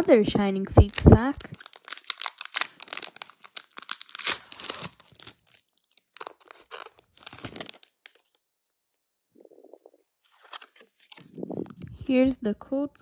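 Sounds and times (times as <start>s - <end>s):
foil wrapper tearing and crinkling: 0.8s - 8.4s.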